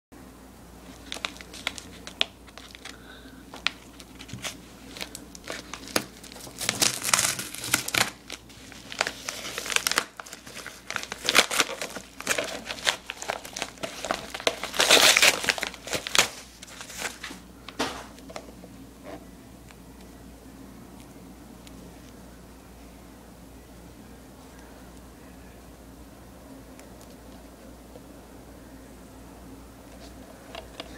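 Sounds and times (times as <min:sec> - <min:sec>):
paper mailer crinkling and tearing: 0:00.8 - 0:18.2.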